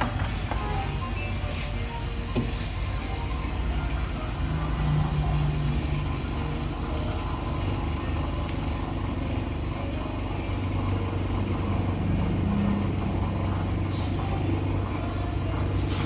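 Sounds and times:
road traffic rumble: 0.0s - 16.0s.

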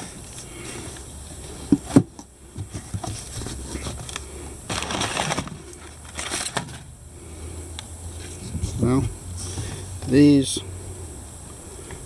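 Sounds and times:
packing paper rustling: 3.0s - 6.9s.

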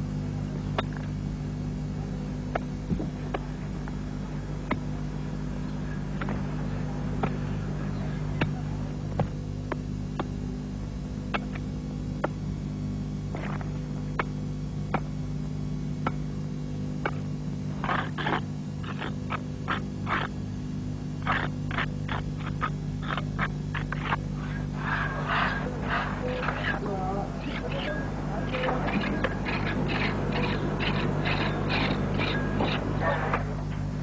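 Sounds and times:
low hum: 0.0s - 34.0s.

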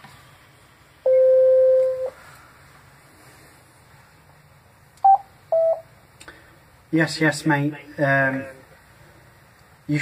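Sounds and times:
electronic beep tone: 1.1s - 2.1s.

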